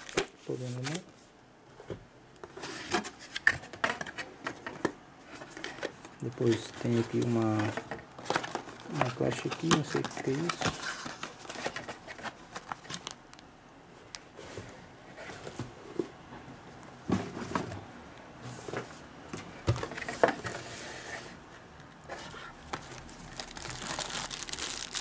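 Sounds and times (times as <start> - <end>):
cardboard and plastic rustling: 0.0 - 13.4, 14.2 - 25.0.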